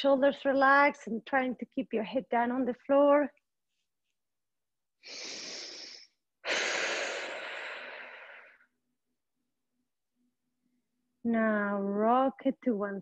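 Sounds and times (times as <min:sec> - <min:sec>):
woman breathing deeply: 0:05.0 - 0:08.7.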